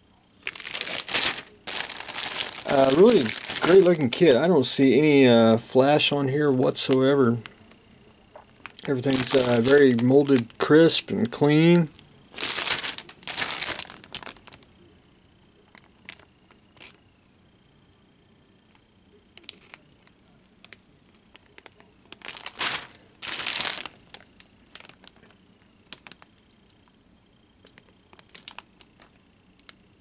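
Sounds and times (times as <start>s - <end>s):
plastic bags crinkling: 0.4s - 4.2s, 8.4s - 14.7s, 15.7s - 17.0s, 19.4s - 26.4s, 27.6s - 29.7s
small clicks and crackles: 6.9s - 10.6s, 11.9s - 14.7s, 15.6s - 17.0s, 18.7s - 27.0s, 27.6s - 29.9s.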